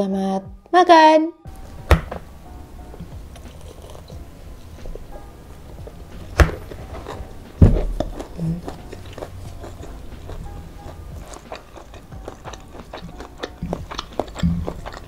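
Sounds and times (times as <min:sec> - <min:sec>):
loud thump: 0:01.8 - 0:02.2, 0:07.6 - 0:08.0
chewing: 0:03.0 - 0:15.0
fingers tearing fried chicken: 0:06.4 - 0:15.0.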